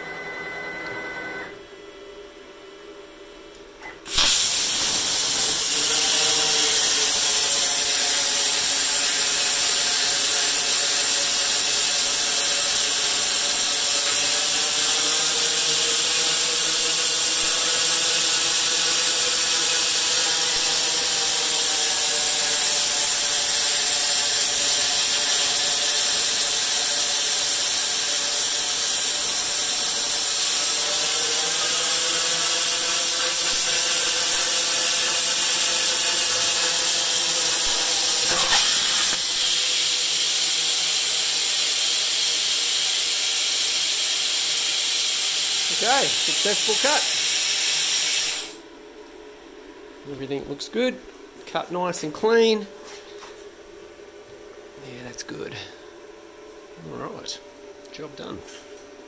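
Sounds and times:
plasma arc whine: 3.9s - 48.7s
plasma cutter hissing: 4.0s - 48.6s.

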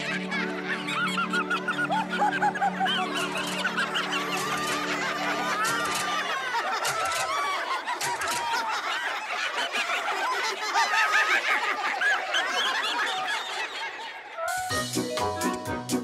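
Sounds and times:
music: 0.0s - 6.3s, 14.4s - 16.0s.

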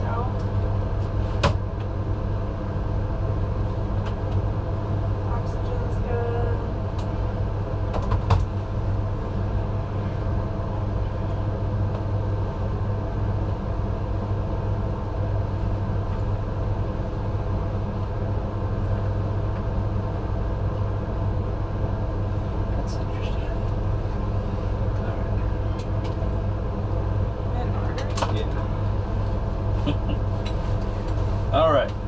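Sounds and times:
ambulance engine rumble: 0.0s - 32.0s.

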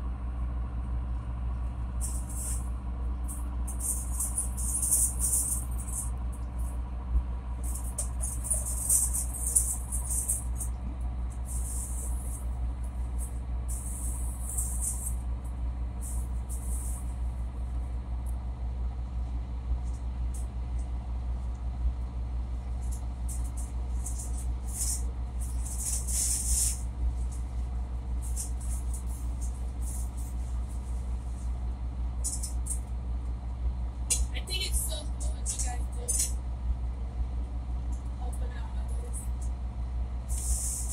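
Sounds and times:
boat diesel engine droning: 0.0s - 40.9s
short bursts of hiss: 40.3s - 40.9s.

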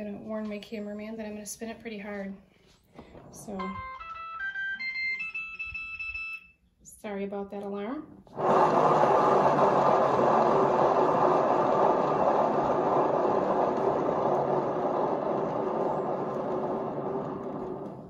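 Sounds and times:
turntable bearings whirring: 8.3s - 18.0s.

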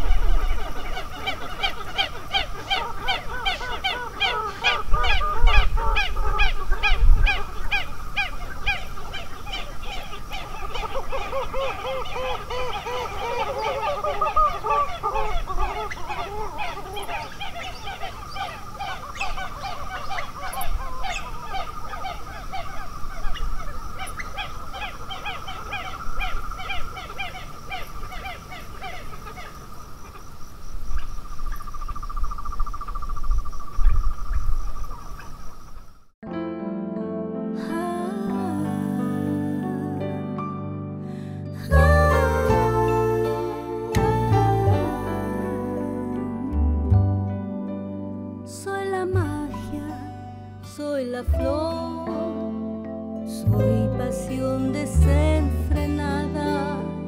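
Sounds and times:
chorus of birds calling: 0.0s - 35.9s, 41.6s - 46.2s
low wind rumble: 0.0s - 36.1s.

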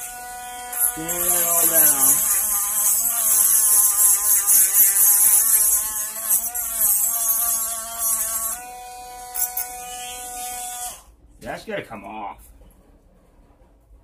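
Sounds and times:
hissing grinding on metal: 0.0s - 11.1s
rotary tool motor whine: 0.0s - 11.1s.

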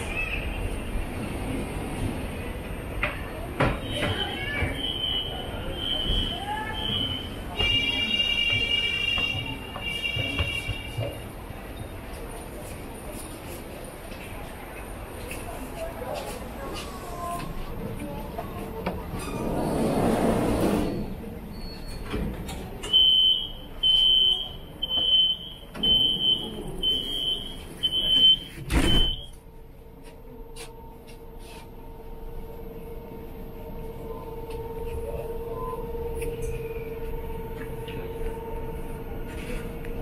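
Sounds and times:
high door warning beeps: 22.8s - 29.4s
train doors thudding shut: 27.9s - 29.3s.

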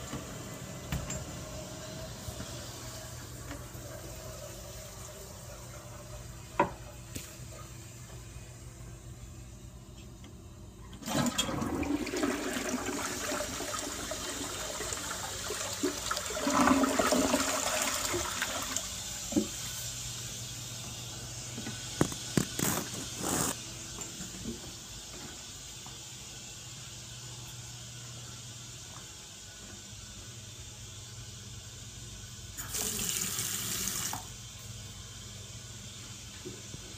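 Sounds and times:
toilet flushing: 0.0s - 8.6s, 10.8s - 23.6s, 31.4s - 34.7s.

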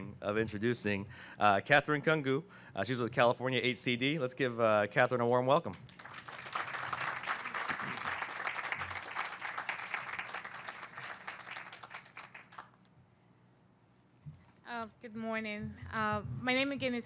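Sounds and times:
audience applauding: 5.8s - 12.8s.

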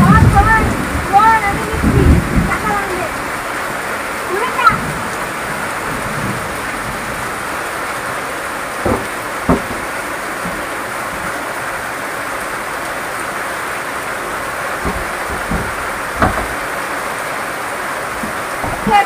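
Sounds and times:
heavy rain pouring: 0.0s - 19.0s
water streaming off roof: 0.0s - 19.0s
dull knocks: 8.8s - 11.5s, 14.4s - 17.2s, 18.0s - 19.0s.

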